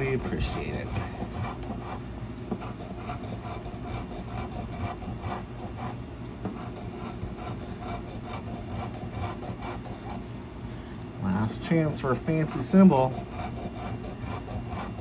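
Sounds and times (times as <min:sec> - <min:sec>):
coin scratching lottery ticket: 0:00.0 - 0:10.2, 0:11.7 - 0:15.0.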